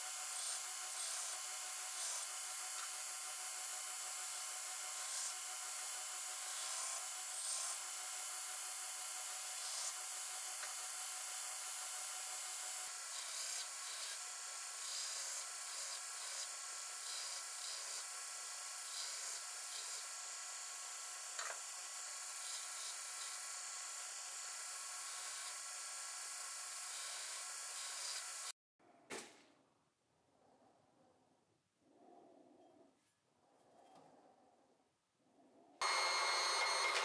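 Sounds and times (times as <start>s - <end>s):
belt grinder grinding steel: 35.8s - 37.0s.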